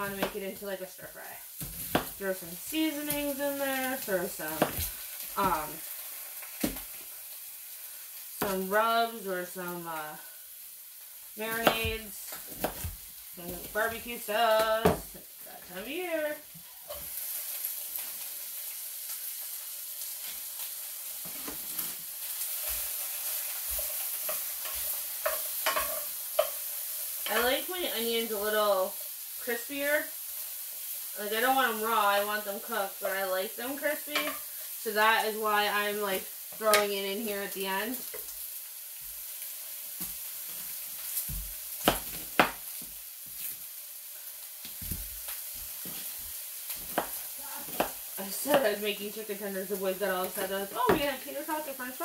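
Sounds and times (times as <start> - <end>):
vegetables sizzling in a frying pan: 0.0 - 52.0
knife chopping on cutting board: 11.6 - 12.9, 46.9 - 48.6
utensil scraping a pan: 21.2 - 26.6.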